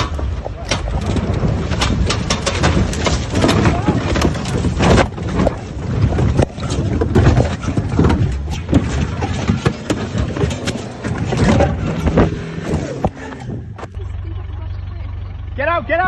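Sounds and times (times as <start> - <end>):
vehicle knocks and bangs: 0.0 - 14.2
constant low rumble: 0.0 - 16.0.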